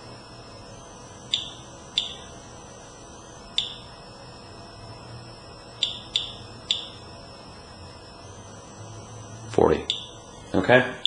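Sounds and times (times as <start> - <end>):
geiger counter clicking: 1.3 - 2.3, 3.5 - 3.9, 5.8 - 7.0, 9.8 - 10.2.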